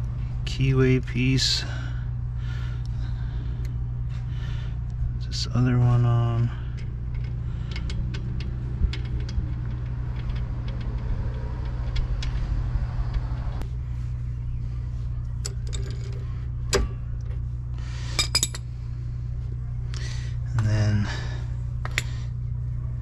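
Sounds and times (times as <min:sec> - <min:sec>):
steady low hum: 0:00.0 - 0:23.0
steel tools clicking and clinking: 0:15.4 - 0:16.2, 0:18.2 - 0:18.6.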